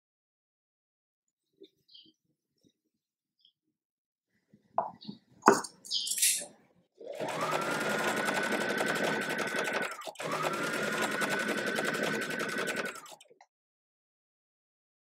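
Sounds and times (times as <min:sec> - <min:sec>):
sewing machine stitching: 0:07.0 - 0:13.4.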